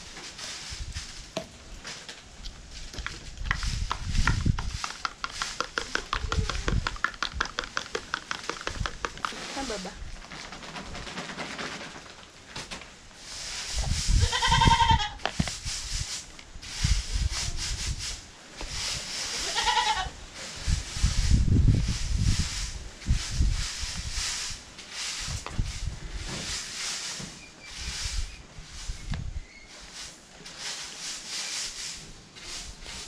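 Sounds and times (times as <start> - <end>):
goat bleating: 19.4 - 20.1
low microphone rumbles: 20.2 - 24.6.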